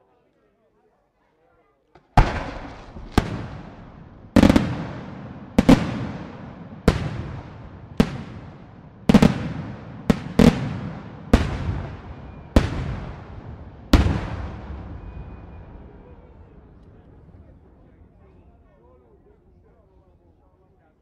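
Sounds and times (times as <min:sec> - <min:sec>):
firework shells bursting: 0:02.0 - 0:13.0.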